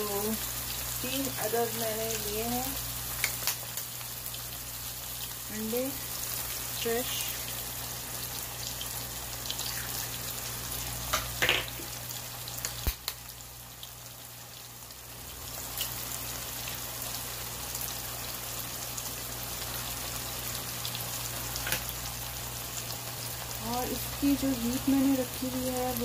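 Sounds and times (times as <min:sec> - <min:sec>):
food sizzling in oil: 0:00.0 - 0:26.0.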